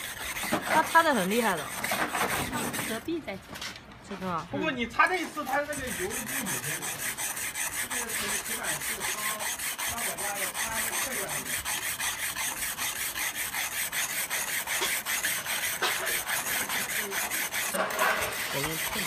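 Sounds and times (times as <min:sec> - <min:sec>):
pumice stone scrubbing grill: 0:00.0 - 0:03.2, 0:05.0 - 0:19.0.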